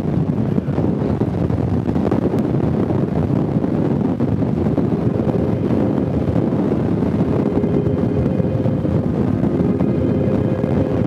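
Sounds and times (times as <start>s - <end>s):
wind buffeting microphone: 0.0s - 11.0s
motorcycle engine running: 4.5s - 11.0s.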